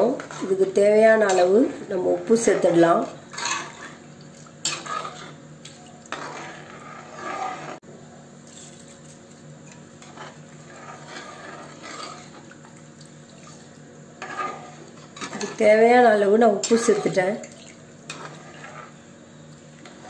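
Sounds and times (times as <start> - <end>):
ladle scraping metal pot: 0.0 - 1.6, 2.2 - 4.0, 4.6 - 7.8, 9.7 - 12.5, 13.4 - 15.7, 16.5 - 19.1.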